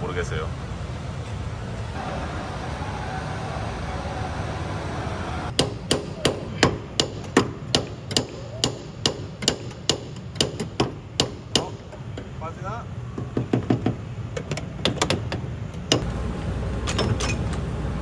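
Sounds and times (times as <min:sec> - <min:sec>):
steady background hum: 0:00.0 - 0:18.0
hammer striking metal: 0:05.5 - 0:12.3.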